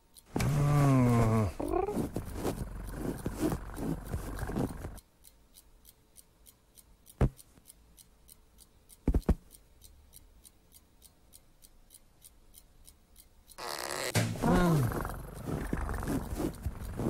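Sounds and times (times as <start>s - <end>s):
quick steady ticking: 0.0s - 17.0s
sharp thumps: 14.1s - 17.0s.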